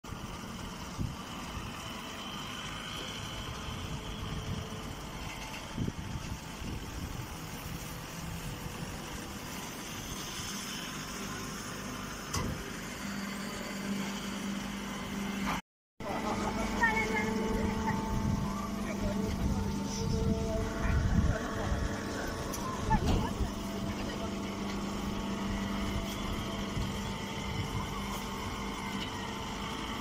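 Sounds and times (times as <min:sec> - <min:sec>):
baler motor drone: 0:00.1 - 0:30.0
low hum: 0:16.0 - 0:30.0.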